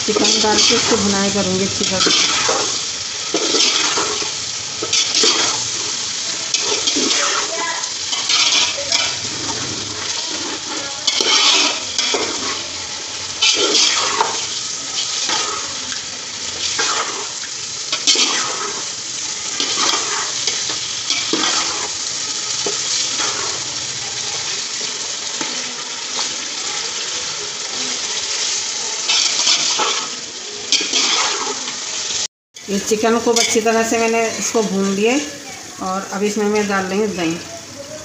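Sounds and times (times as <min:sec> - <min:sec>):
chicken sizzling in a pot: 0:00.0 - 0:38.0
metal ladle stirring: 0:00.1 - 0:12.7, 0:13.4 - 0:15.7, 0:16.6 - 0:26.8, 0:29.0 - 0:31.7.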